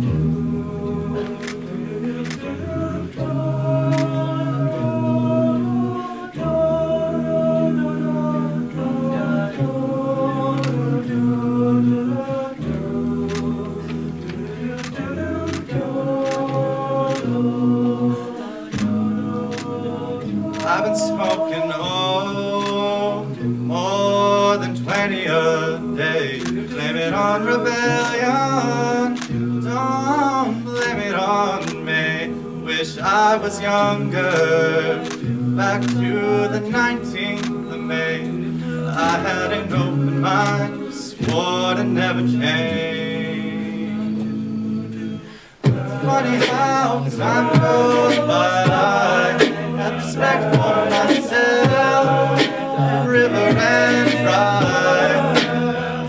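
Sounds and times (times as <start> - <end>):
men singing a cappella: 0.0 - 56.0
vocal percussion: 0.0 - 56.0.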